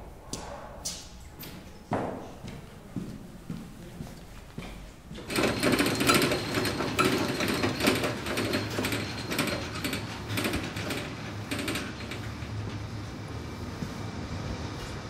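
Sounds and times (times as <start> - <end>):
rolling shelving clicking rattle: 5.2 - 13.4.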